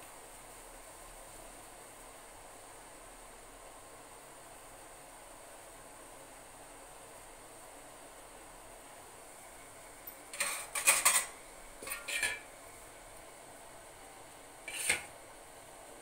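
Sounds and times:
steel plates clattering: 10.3 - 12.4.

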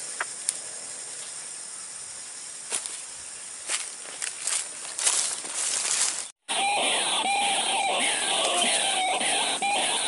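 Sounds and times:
leaves and brush rustling: 0.0 - 6.4.

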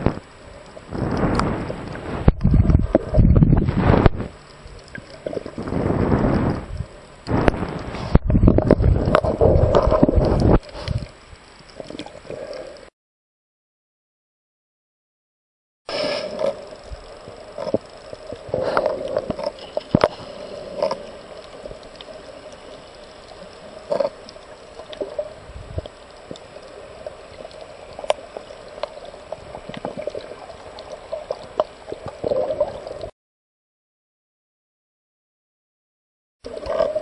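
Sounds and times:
sharp underwater clicks and pops: 0.0 - 12.6, 15.9 - 33.1
muffled underwater noise: 15.9 - 33.1.

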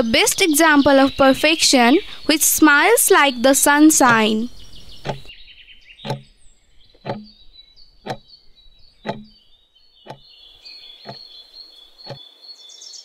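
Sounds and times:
birds chirping: 0.0 - 13.0
clock ticking: 4.0 - 4.4, 5.0 - 5.3, 6.0 - 6.4, 7.0 - 7.4, 8.0 - 8.3, 9.0 - 9.4.

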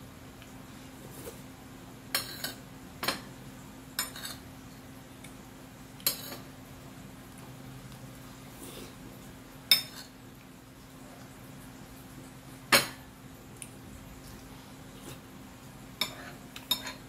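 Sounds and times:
metal spoon clinking on a plate: 16.0 - 17.0.

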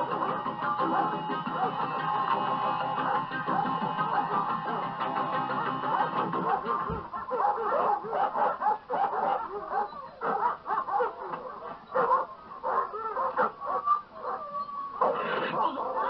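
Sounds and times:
dog snarling and barking: 5.9 - 14.4, 15.0 - 16.0.

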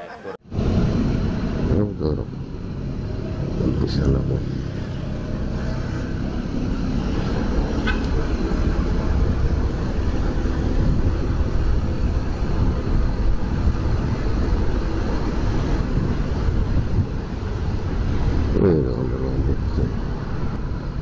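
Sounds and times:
traffic rumble: 0.0 - 21.0
wind buffeting microphone: 6.1 - 21.0.

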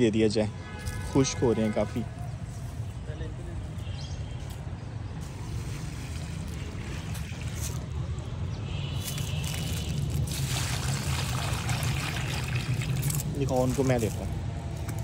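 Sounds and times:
water trickling onto soil: 5.2 - 15.0.

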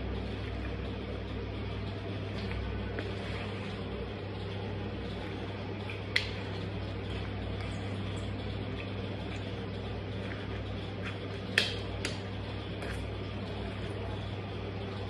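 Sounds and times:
room hum and hiss: 0.0 - 15.0.

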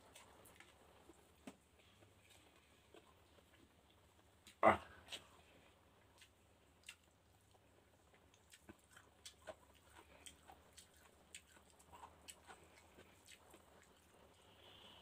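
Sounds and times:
chewing clicks and smacks: 6.2 - 14.2.

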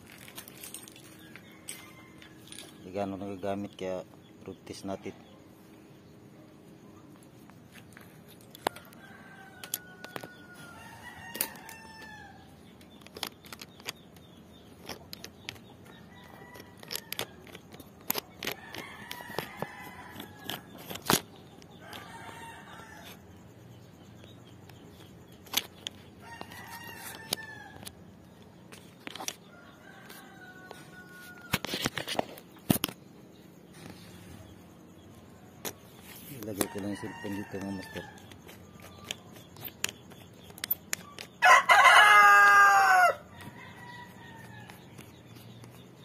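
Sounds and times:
roosters crowing: 0.1 - 3.7, 8.4 - 14.0, 14.7 - 23.5, 25.0 - 33.0, 35.6 - 45.8
sharp knocks and clicks: 12.7 - 22.0, 24.2 - 29.4, 37.5 - 41.4.

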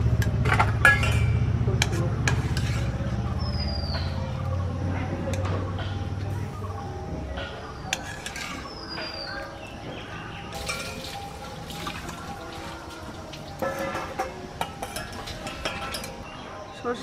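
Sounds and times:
water dripping and splashing: 10.5 - 13.8
water pouring into a bowl: 10.6 - 13.6.

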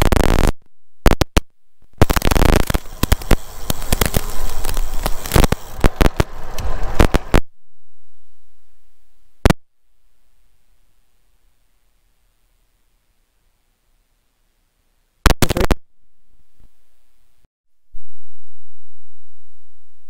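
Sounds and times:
sharp crackles and knocks: 0.0 - 7.4.

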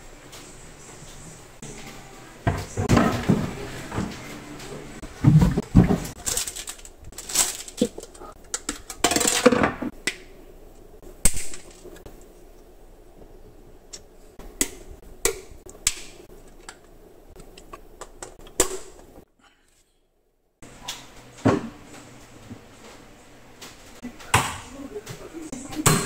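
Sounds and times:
plastic packaging crinkling: 6.2 - 9.5.

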